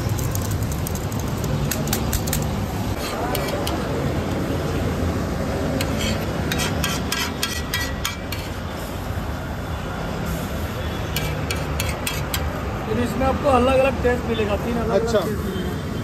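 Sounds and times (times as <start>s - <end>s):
metal spatula scraping pan: 2.9s - 3.8s, 5.8s - 8.6s, 11.1s - 12.5s.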